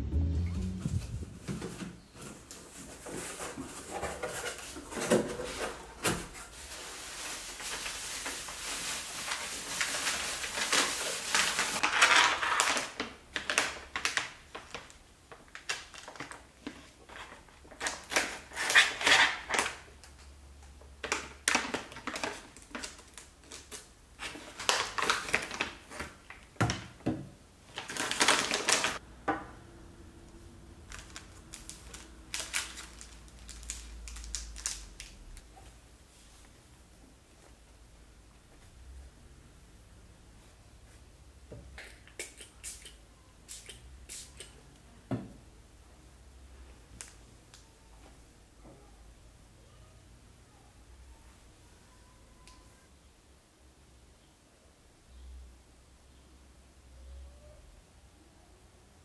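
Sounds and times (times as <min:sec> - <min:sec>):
packaging rustling and crinkling: 0:01.5 - 0:19.9, 0:21.0 - 0:26.9, 0:27.7 - 0:29.0, 0:30.8 - 0:36.2.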